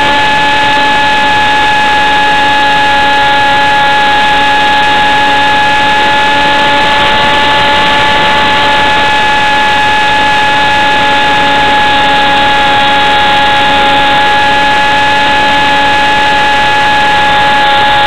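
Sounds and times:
model jet motor whine: 0.0 - 18.0
rushing air: 5.4 - 14.8.

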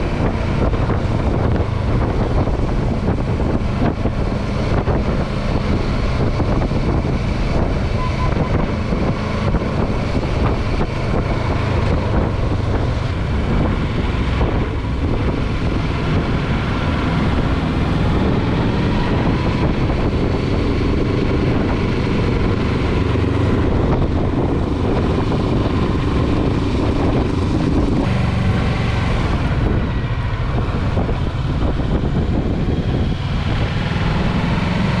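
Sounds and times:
motorcycle engine running: 0.0 - 33.8
wind rushing over microphone: 0.0 - 35.0.

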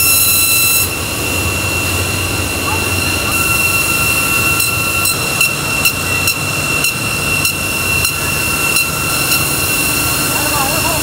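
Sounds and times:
polishing wheel whining: 0.0 - 11.0
sharp ticks: 4.6 - 9.5.

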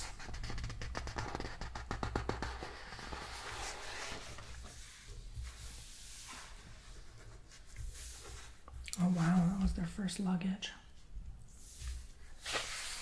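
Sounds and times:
book pages turning: 0.2 - 9.4, 11.7 - 13.0
paper rustling: 0.5 - 9.4, 11.8 - 13.0.

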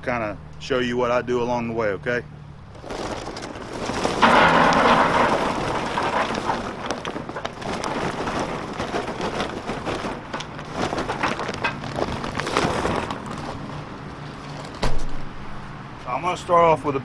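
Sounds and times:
charcoal clattering onto grate: 2.7 - 13.8.

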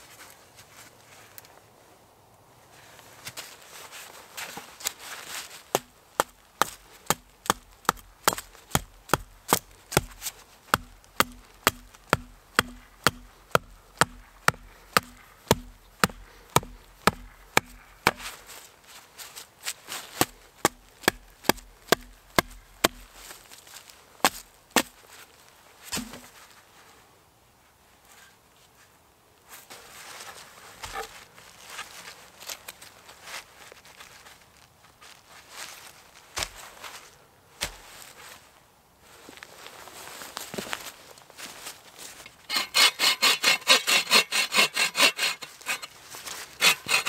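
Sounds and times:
hatchet chopping wood: 5.7 - 18.4, 20.2 - 23.2, 25.9 - 26.3, 42.5 - 45.9, 46.6 - 47.0.

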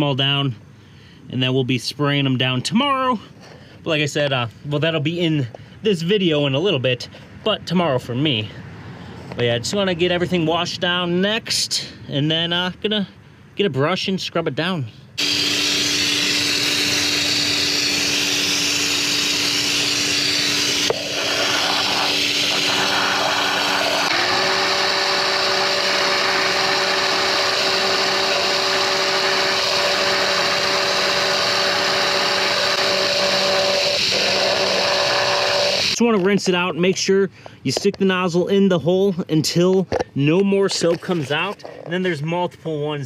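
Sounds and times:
power washer motor humming: 15.2 - 36.0
water jet hissing: 16.9 - 35.9.

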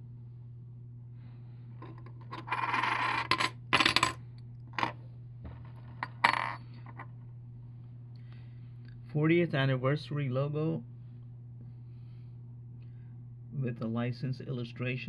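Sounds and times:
coins clinking on wooden table: 1.8 - 7.0.

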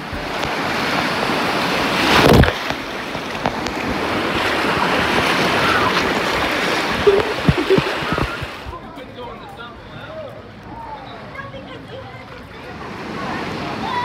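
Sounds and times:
water splashing surge: 0.0 - 8.7
rushing whitewater: 0.0 - 8.8.

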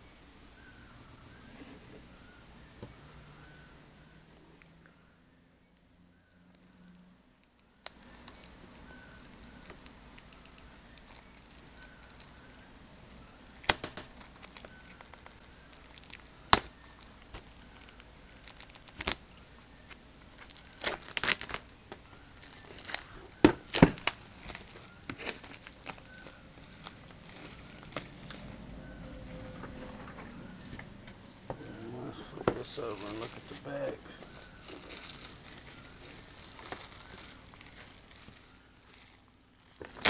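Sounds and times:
plastic wrap crinkling and tearing: 5.8 - 12.7, 13.4 - 29.2, 31.6 - 40.0.

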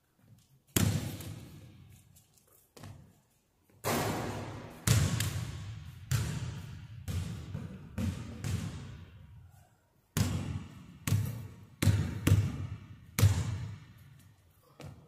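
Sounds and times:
basketball bouncing on wooden floor: 3.9 - 9.0, 10.2 - 14.0.

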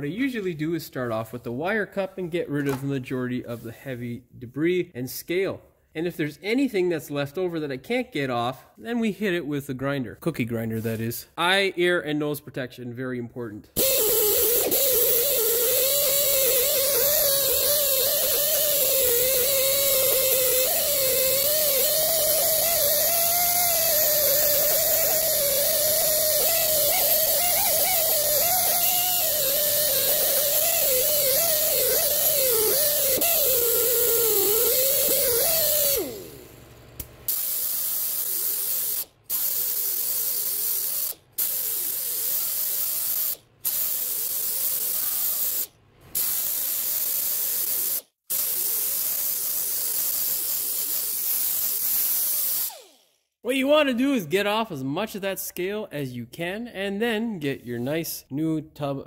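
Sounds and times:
grinder with disc running: 13.8 - 36.5
wire brush grinder hissing: 13.8 - 36.5, 37.2 - 53.3.

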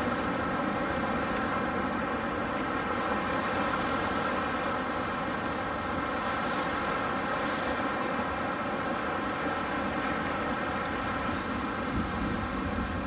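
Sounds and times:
wind on microphone: 11.8 - 13.0.

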